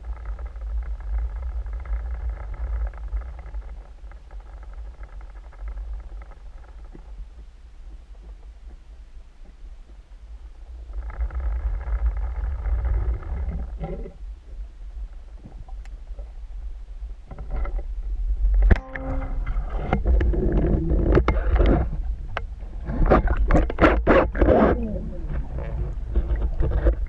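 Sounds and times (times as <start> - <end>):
low underwater rumble: 0.0 - 27.0
underwater clicking and bubbling: 0.0 - 27.0
buzzing drone: 17.3 - 27.0.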